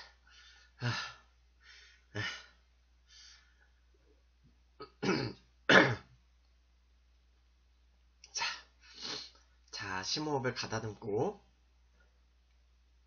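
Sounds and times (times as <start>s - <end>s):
man clearing his throat: 4.8s - 6.1s
man coughing: 4.8s - 6.1s.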